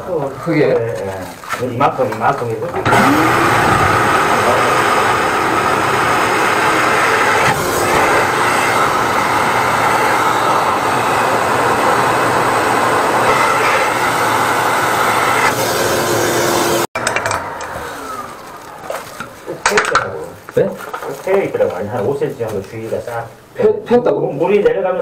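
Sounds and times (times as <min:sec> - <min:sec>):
drain-cleaning machine whirring: 0:02.5 - 0:20.1.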